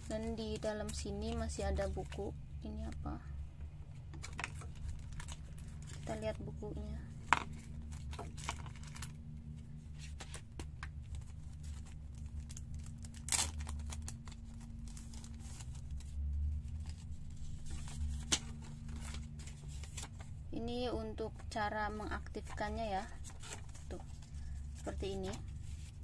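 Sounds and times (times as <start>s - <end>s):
steady low hum: 0.0s - 26.0s
paper cards rustling: 3.9s - 6.3s, 7.1s - 20.4s, 21.4s - 26.0s
plastic bag crinkling: 4.1s - 6.3s, 11.0s - 20.3s.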